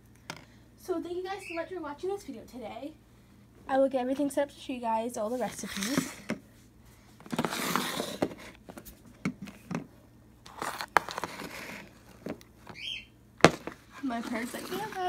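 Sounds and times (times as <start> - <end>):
rustling and shuffling: 5.1 - 12.8, 13.4 - 15.0
plastic containers knocking on stone: 13.4 - 13.8.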